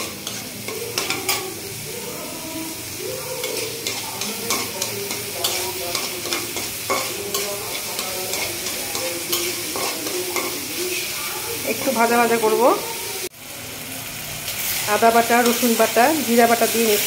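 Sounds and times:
onions sizzling in oil: 0.0s - 17.0s
metal spatula scraping pan: 3.3s - 11.2s.

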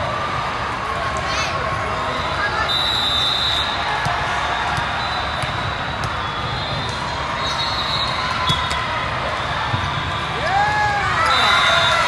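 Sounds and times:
gym hall background roar: 0.0s - 12.0s
volleyballs smacking and bouncing: 4.0s - 7.2s, 8.0s - 11.3s.

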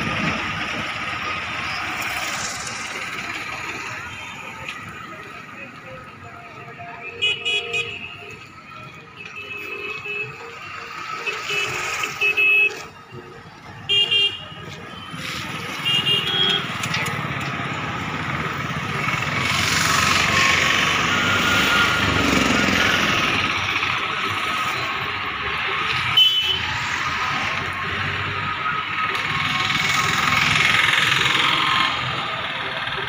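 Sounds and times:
vehicle horn toots: 13.9s - 14.6s
diesel engine running: 16.3s - 26.0s, 26.6s - 33.0s.

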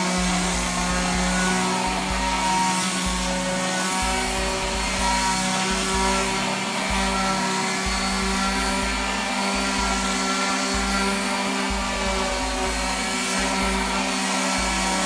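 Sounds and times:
orbital sander sanding wood: 0.0s - 15.0s.

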